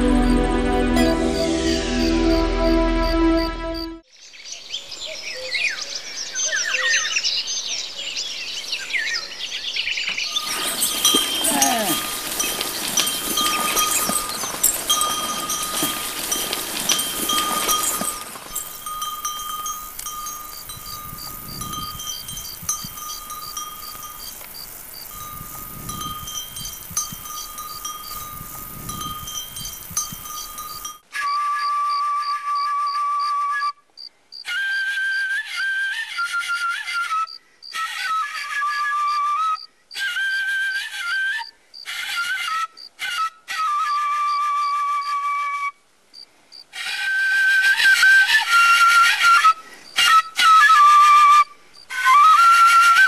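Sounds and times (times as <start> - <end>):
background music: 0.0 - 4.0
songbirds singing and chirping: 4.1 - 31.0
faint outdoor hush: 8.0 - 31.1, 45.6 - 53.0
insects trilling: 10.2 - 31.0.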